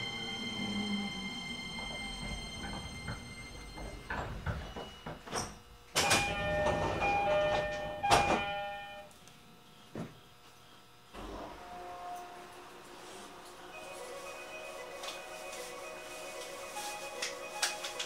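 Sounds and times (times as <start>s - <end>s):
train doors shutting: 0.0s - 9.1s, 11.1s - 18.0s
two-note door chime: 6.0s - 9.1s.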